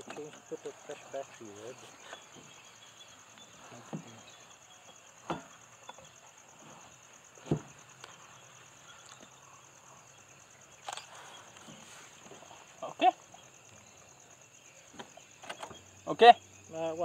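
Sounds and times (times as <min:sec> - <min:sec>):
faint insects chirring: 0:00.0 - 0:17.0
dull knocks: 0:05.2 - 0:06.1, 0:07.4 - 0:07.9.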